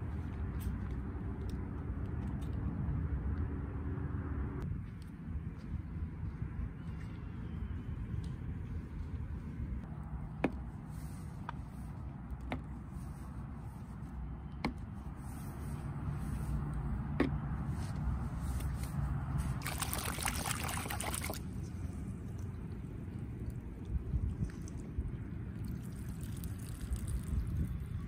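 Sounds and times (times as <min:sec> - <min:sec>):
water trickling and pouring: 0:19.6 - 0:28.0.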